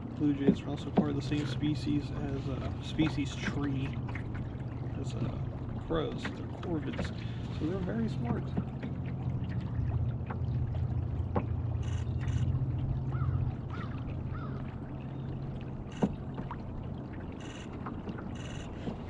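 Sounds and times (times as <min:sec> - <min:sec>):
water along hull: 0:00.0 - 0:19.0
electric trolling motor hum: 0:08.5 - 0:19.0.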